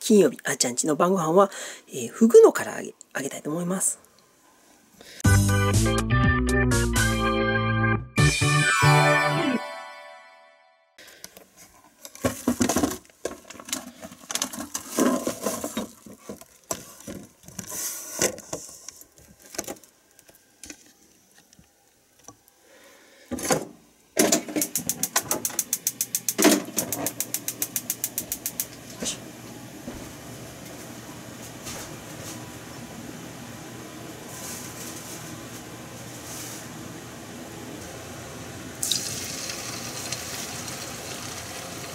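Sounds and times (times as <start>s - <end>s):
kitchen things clattering: 12.1s - 17.3s
gas burner humming: 24.1s - 41.9s
gas stove igniter clicking: 24.5s - 28.8s.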